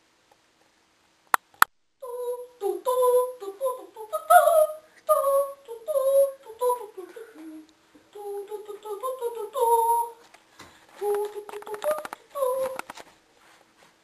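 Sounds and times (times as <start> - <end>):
person singing unaccompanied: 2.0 - 13.1.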